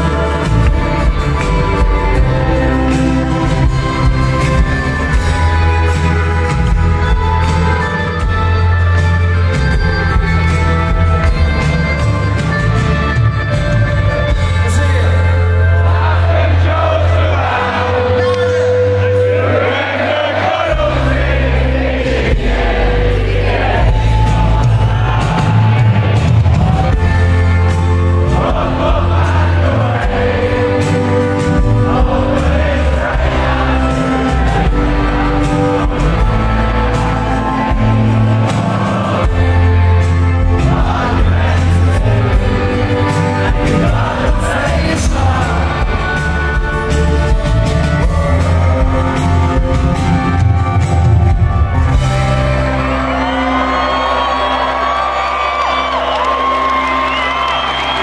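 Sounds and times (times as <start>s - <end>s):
lead vocal: 0.0s - 7.0s, 15.6s - 50.3s
heavy bass: 0.0s - 53.9s
amplified acoustic guitar: 0.0s - 58.0s
live rock band: 0.0s - 58.0s.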